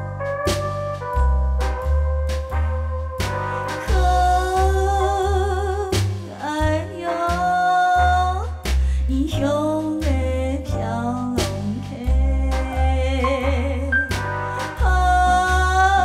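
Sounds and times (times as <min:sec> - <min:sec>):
pulsing bass beat: 0:00.0 - 0:16.0
person singing with vibrato: 0:03.6 - 0:08.5.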